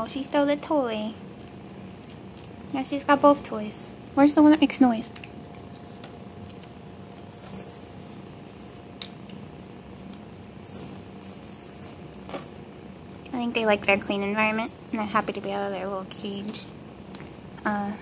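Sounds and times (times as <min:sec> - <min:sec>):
electronic toy bird chirps: 0:07.3 - 0:08.3, 0:10.6 - 0:12.7, 0:14.6 - 0:14.8, 0:16.5 - 0:16.8.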